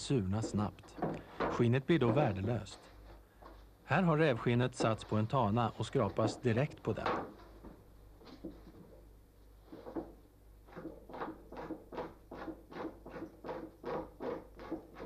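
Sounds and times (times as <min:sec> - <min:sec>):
tool scraping animal skin: 0:10.7 - 0:15.0.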